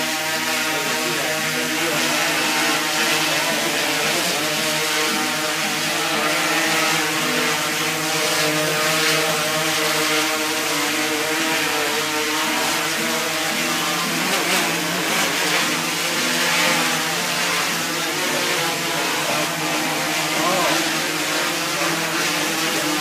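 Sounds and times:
drone propellers buzzing whine: 0.0 - 23.0.

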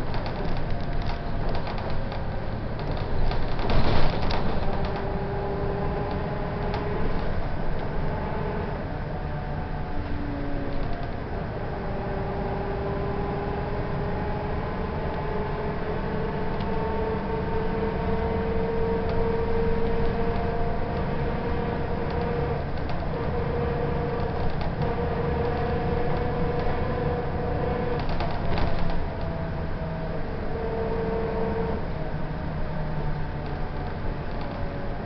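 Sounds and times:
rattle: 0.0 - 5.2
bus engine rumble: 0.0 - 35.0
drivetrain whine: 0.0 - 35.0.

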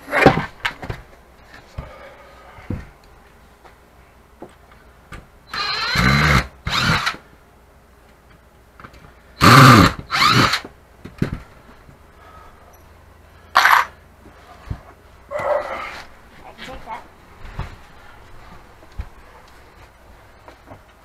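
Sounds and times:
power drill driving screws into wood: 5.5 - 7.2, 9.4 - 10.7.

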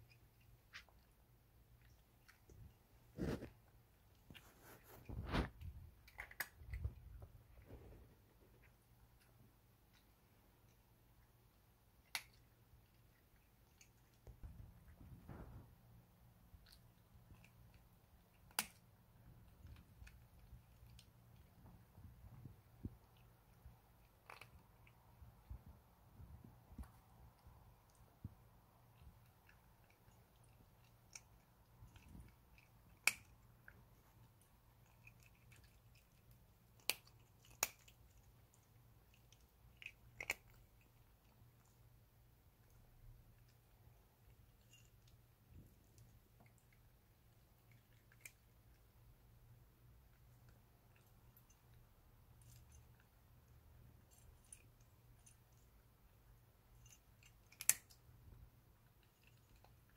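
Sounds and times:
cat chewing clicks: 28.8 - 41.5.

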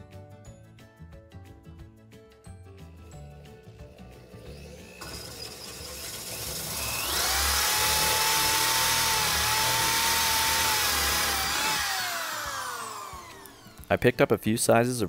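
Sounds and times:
electric drill boring: 3.4 - 14.3.

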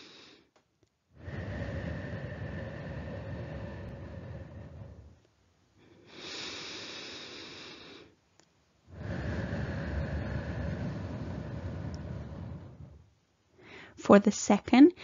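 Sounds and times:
woman breathing deeply: 0.0 - 0.5, 1.1 - 8.2, 8.9 - 14.0.

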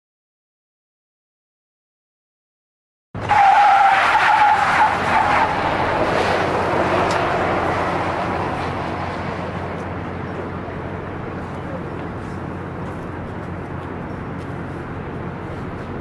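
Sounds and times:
tyres squealing on concrete: 3.2 - 6.8
rush of tyre noise: 3.2 - 16.0.

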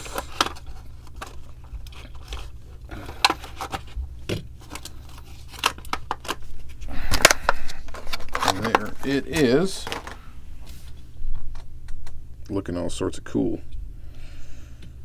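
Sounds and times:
steady low hum: 0.0 - 15.0
plastic blister pack crackling: 4.6 - 10.3.

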